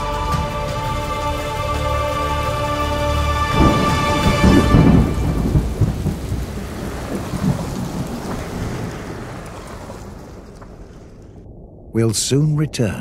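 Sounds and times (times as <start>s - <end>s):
steady rain: 0.0s - 12.9s
thunder rolling: 2.3s - 13.0s.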